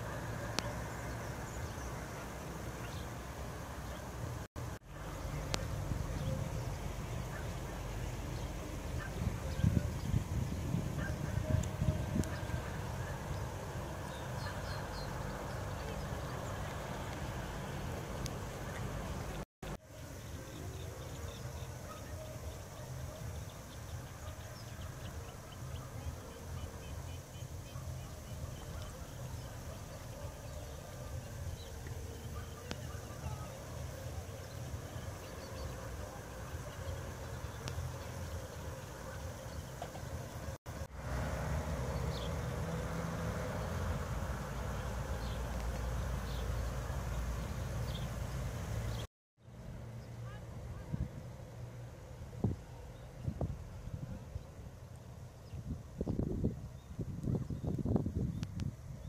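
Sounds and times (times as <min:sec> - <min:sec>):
low outdoor rumble: 0:00.0 - 0:59.0
small birds chirping: 0:05.0 - 0:40.6, 0:43.7 - 0:49.1
wind buffeting microphone: 0:08.4 - 0:14.0, 0:55.4 - 0:59.0.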